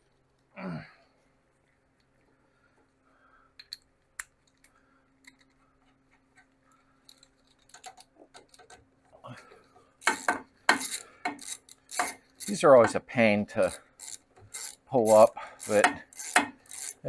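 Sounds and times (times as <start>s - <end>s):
ratchet clicking: 10.0s - 13.0s, 13.6s - 17.0s.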